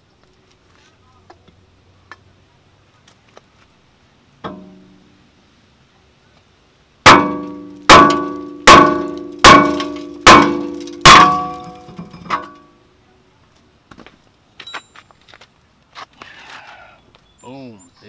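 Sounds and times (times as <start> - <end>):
hammer striking metal brake rotor: 7.0 - 12.6.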